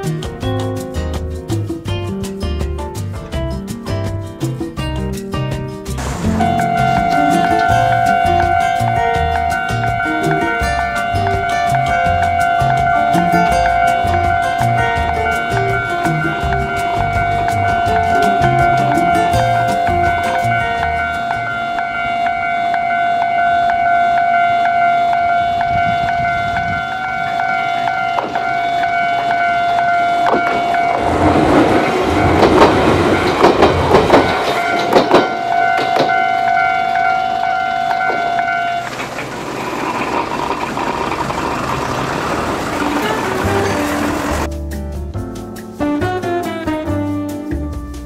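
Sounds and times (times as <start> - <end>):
road traffic: 5.9 - 44.5
electric train passing: 6.0 - 44.5
level crossing bell ringing: 6.3 - 33.5, 34.4 - 38.9
train wheels clacking on rails: 30.2 - 37.0, 37.8 - 44.5.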